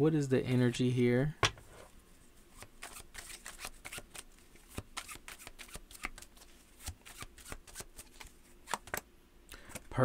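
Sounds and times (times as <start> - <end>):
cards being shuffled: 2.6 - 9.0.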